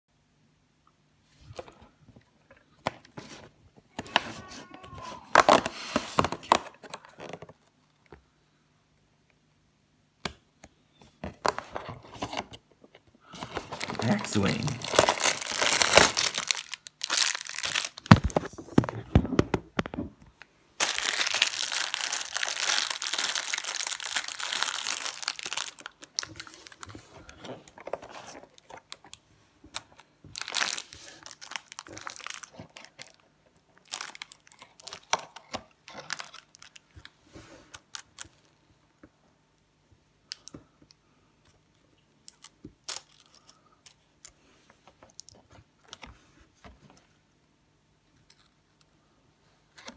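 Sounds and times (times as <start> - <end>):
plastic bag crinkling: 13.4 - 18.6, 20.8 - 29.2, 30.3 - 33.2, 33.8 - 36.9.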